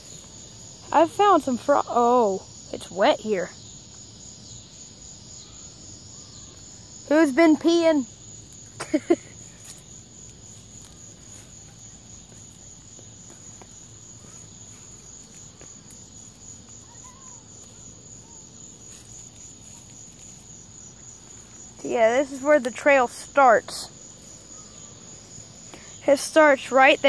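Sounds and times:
insects trilling: 0:00.0 - 0:27.0
footsteps on a trail: 0:09.5 - 0:17.9, 0:18.7 - 0:22.7.

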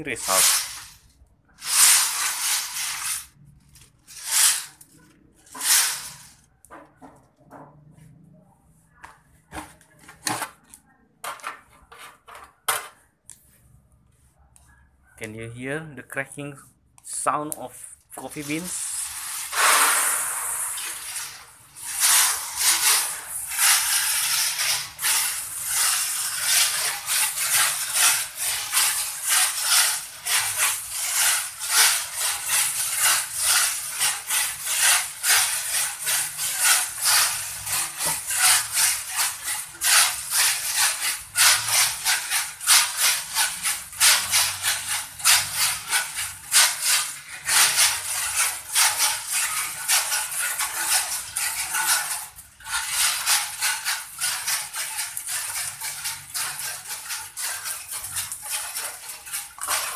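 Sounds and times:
coffee beans cracking and rattling: 0:18.2 - 0:59.9
steady hiss: 0:18.4 - 0:21.4.

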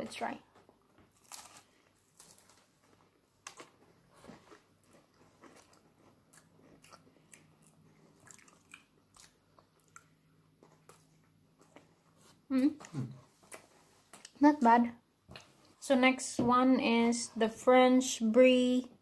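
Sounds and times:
biscuit crunching while chewed: 0:01.1 - 0:14.4.

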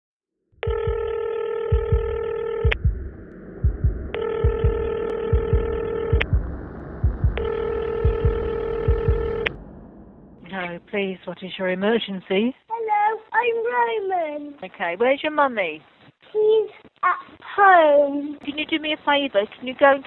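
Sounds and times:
long electronic beeps: 0:00.6 - 0:10.8
heartbeat low double thumps: 0:00.7 - 0:01.1, 0:01.7 - 0:10.6.

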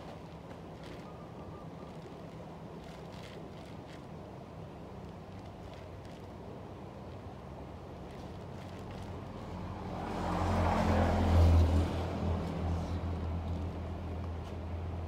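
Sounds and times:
low engine hum: 0:00.0 - 0:15.0
vehicle passing by: 0:09.2 - 0:14.2.

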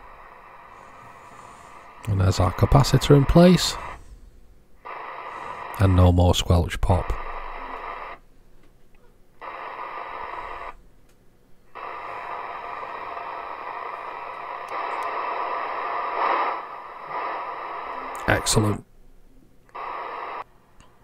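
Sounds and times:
radio receiver hiss: 0:00.0 - 0:08.3, 0:09.3 - 0:10.9, 0:11.6 - 0:21.0.

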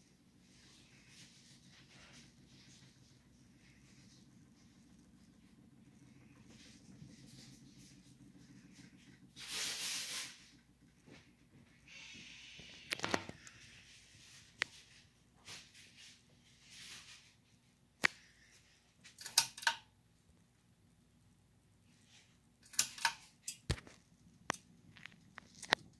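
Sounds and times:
ceiling fan hum: 0:00.0 - 0:25.9.

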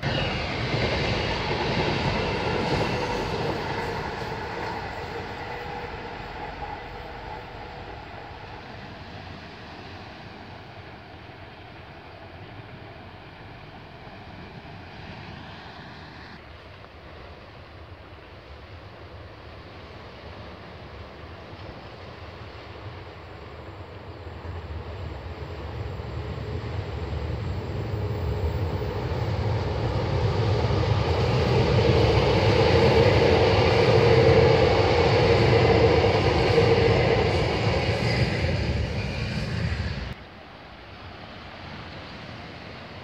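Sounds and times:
electric train passing: 0:00.0 - 0:43.0.

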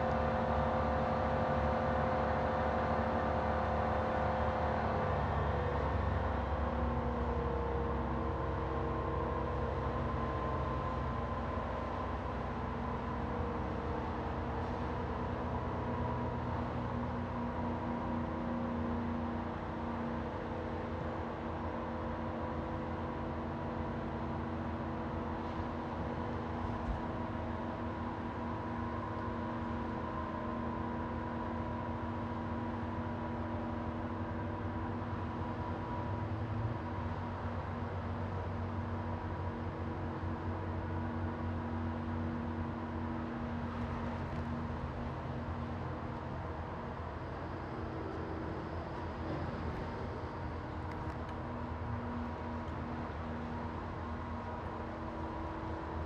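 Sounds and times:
large engine rumbling: 0:00.0 - 0:56.0
faint steady whine: 0:20.2 - 0:56.0.

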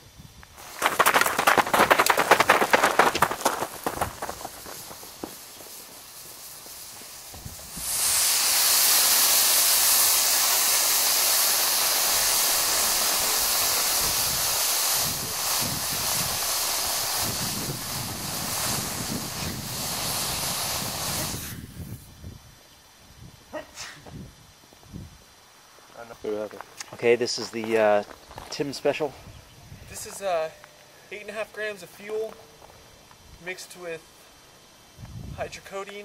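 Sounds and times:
rocket motor hissing: 0:00.0 - 0:25.6.

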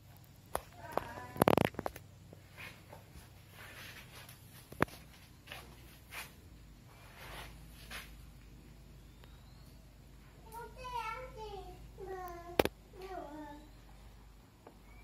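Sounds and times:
faint rustling and shuffling: 0:00.0 - 0:08.9.

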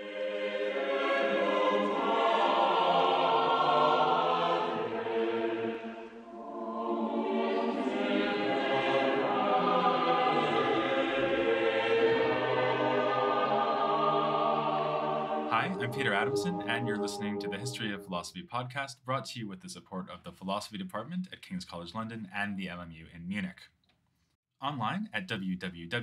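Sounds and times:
choir singing sustained chords: 0:00.0 - 0:18.2.

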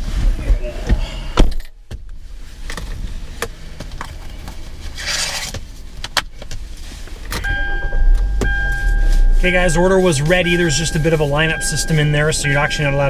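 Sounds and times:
rustling in car seat: 0:02.2 - 0:13.0
seatbelt drawn from retractor: 0:04.9 - 0:05.5.

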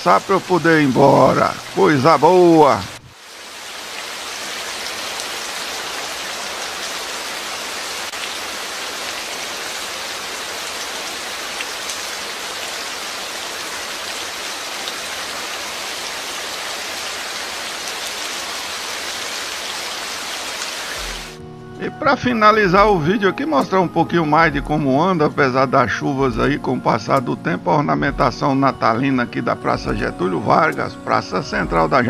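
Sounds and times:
heavy rain on street and roofs: 0:00.0 - 0:21.4.

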